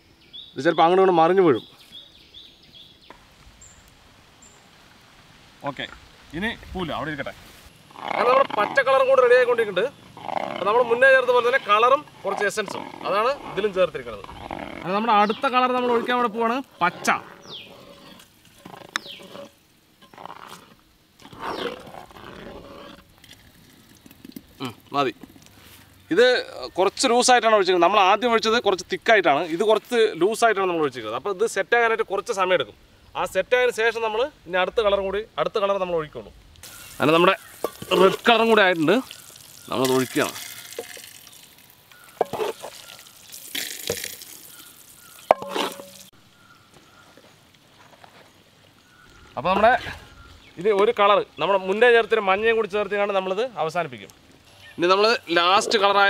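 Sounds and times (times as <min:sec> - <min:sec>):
syrup splashing: 0:36.6 - 0:46.1
metal mug clinking on basin: 0:39.8 - 0:41.1, 0:45.3 - 0:46.1.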